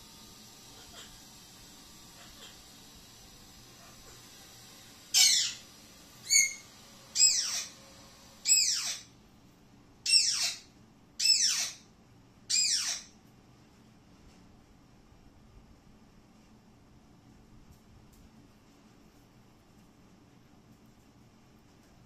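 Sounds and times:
parakeet calling: 0.7 - 1.3, 2.1 - 2.7, 5.1 - 7.8, 8.4 - 9.1, 10.0 - 11.9, 12.5 - 13.1.

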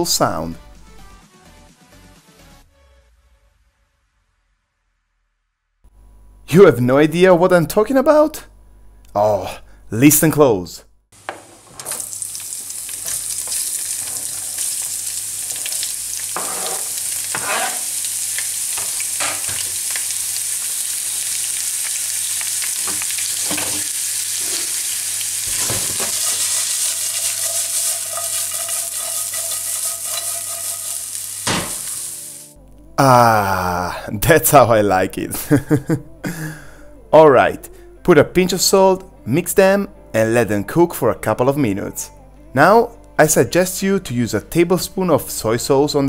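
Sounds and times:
vegetables sizzling in a frying pan: 11.2 - 32.5
utensils clattering against a pan: 11.3 - 12.1, 13.0 - 18.0, 18.8 - 19.8, 22.8 - 24.9, 25.5 - 32.0.

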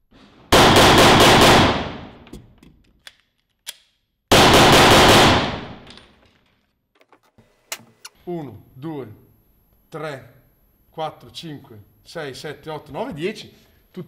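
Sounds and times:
pistol shots with reverberation: 0.5 - 2.2, 4.3 - 5.8
magazine clicks: 2.7 - 6.4.

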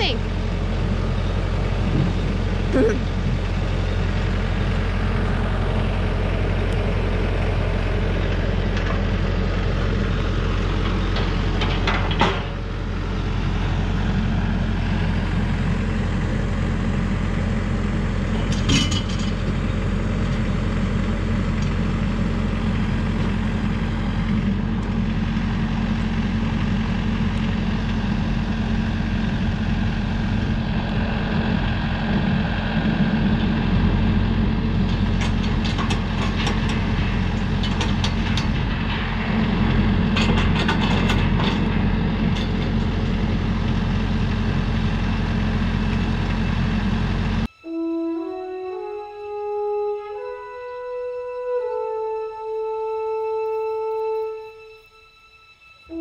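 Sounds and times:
tractor engine idling: 0.0 - 47.8
metal clanks: 18.4 - 19.6, 34.9 - 43.0.

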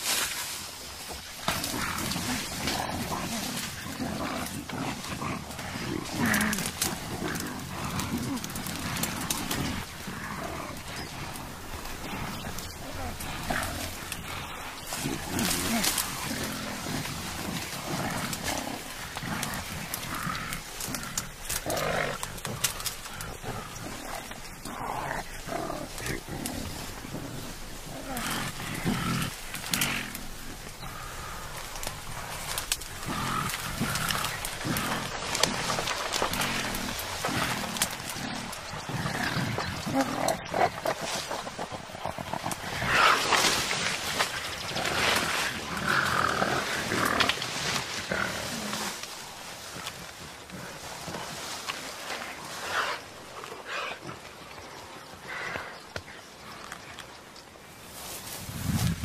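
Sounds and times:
gorillas low calls: 1.0 - 56.8
gorilla clicks: 1.4 - 43.5.

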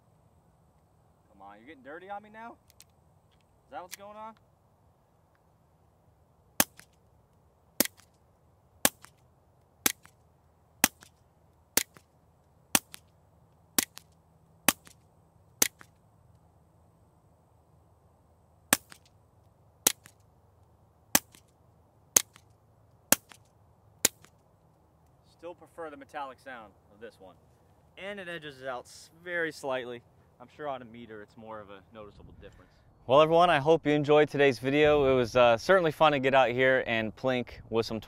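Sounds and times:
suppressed pistol shots: 6.6 - 7.0, 7.8 - 8.2, 8.8 - 9.2, 9.8 - 10.2, 10.8 - 12.1, 12.7 - 13.1, 13.8 - 15.0, 15.6 - 16.0, 18.7 - 19.1, 19.8 - 20.2, 21.1 - 21.5, 22.1 - 22.5, 23.1 - 24.4.

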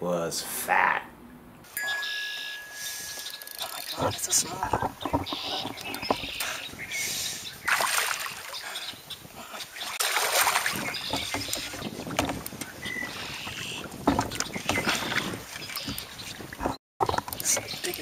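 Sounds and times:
fish splashing at surface: 7.7 - 8.5, 10.0 - 12.3.

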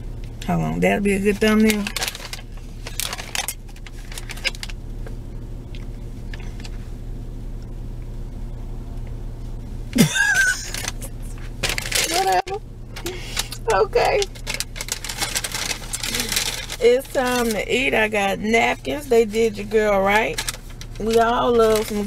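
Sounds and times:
car idling hum: 0.0 - 22.0
paper bag rustling: 1.6 - 4.8, 11.6 - 12.5, 13.2 - 17.9, 19.1 - 22.0.

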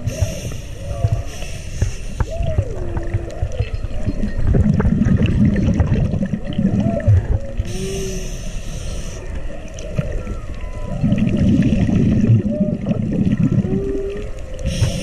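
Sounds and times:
regulator hissing on inhale: 0.0 - 2.4, 7.7 - 9.5, 14.6 - 15.0
whale song moans: 2.2 - 4.4, 6.4 - 8.5, 9.9 - 15.0
bubbles gurgling underwater: 2.3 - 7.7, 9.8 - 15.0.

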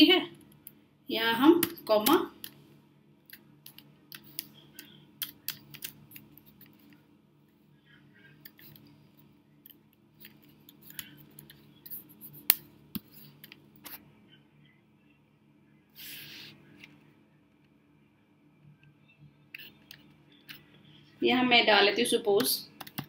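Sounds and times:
faint low hum: 0.0 - 23.0
keyboard typing: 3.3 - 7.0, 22.4 - 23.0
mouse clicking: 3.3 - 7.0.

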